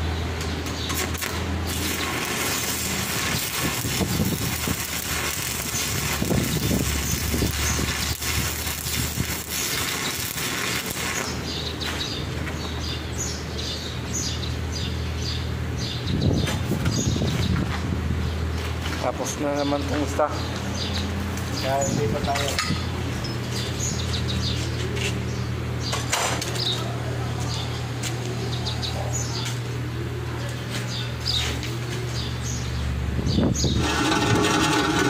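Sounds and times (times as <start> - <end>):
welding arc crackling: 0.6 - 12.4, 33.7 - 35.0.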